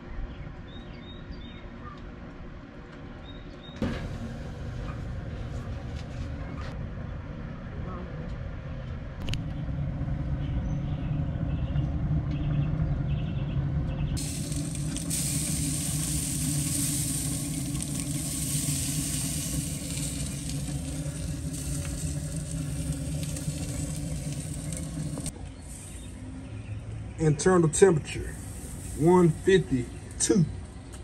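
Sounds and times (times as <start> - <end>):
low steady rumble: 3.8 - 31.0
meat sizzling on grill: 14.2 - 26.1, 28.3 - 30.1.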